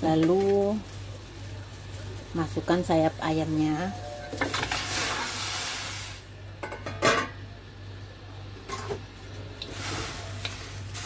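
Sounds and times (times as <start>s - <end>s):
utensils clanking against wok: 4.0s - 5.7s, 6.6s - 7.4s, 8.7s - 11.0s.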